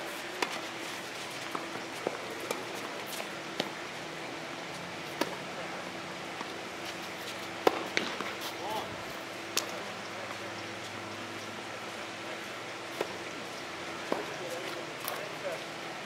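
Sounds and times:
tennis ball struck and bouncing: 7.6s - 8.3s.

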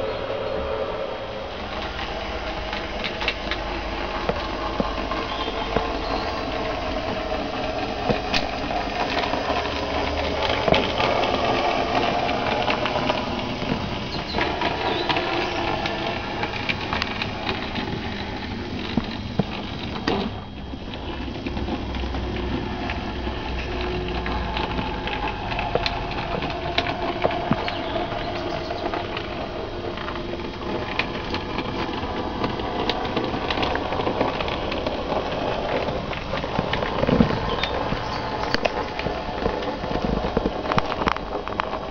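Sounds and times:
wheels clicking on rail joints: 0.0s - 41.9s.

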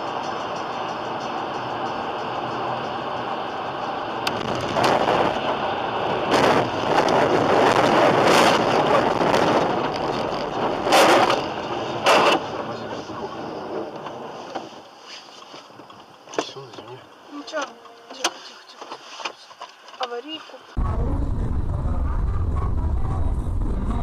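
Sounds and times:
road and wind noise: 0.0s - 24.0s.

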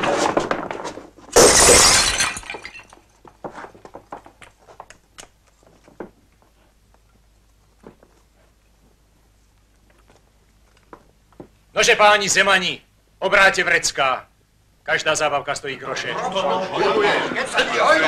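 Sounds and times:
glass shattering: 1.3s - 3.0s
glass pieces tinkling: 1.4s - 3.0s.

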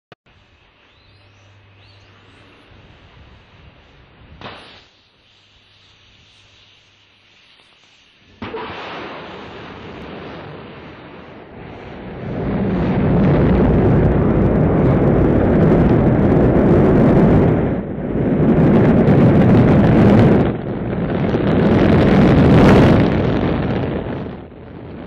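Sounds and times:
rocket engines roaring: 8.3s - 25.0s.

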